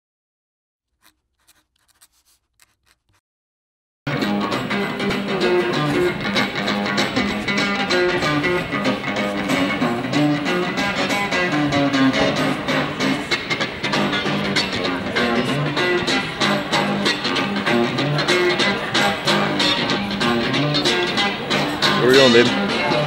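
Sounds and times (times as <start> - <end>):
electric guitar music: 4.1 - 23.0.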